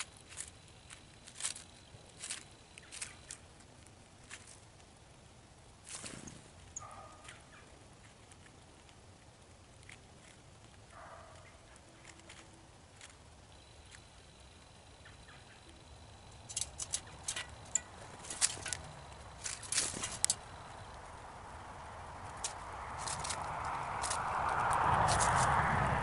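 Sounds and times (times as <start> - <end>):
squirrel clicks and taps on metal: 16.3 - 20.5, 22.2 - 25.4.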